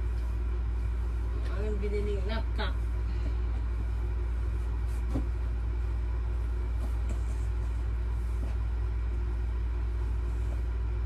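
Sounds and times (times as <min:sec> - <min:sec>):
air conditioner humming: 0:00.0 - 0:11.0.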